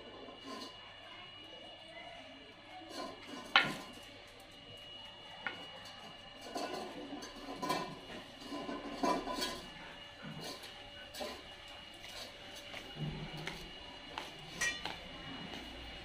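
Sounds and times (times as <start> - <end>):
metal dog bowls clattering on tiles: 2.9 - 4.0, 5.8 - 11.5, 14.6 - 15.0.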